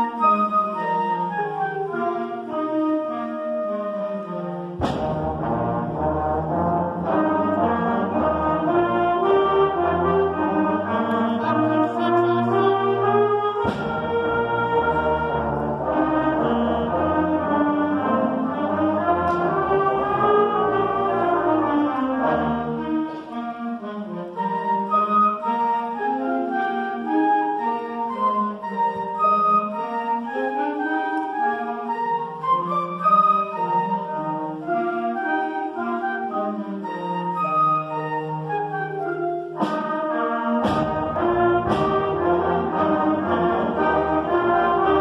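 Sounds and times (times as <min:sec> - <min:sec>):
concert band playing slow piece: 0:00.0 - 0:45.0.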